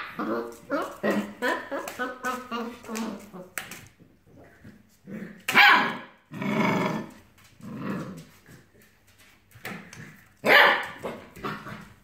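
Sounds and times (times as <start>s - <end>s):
puppy barking and grumbling: 0.0s - 3.6s.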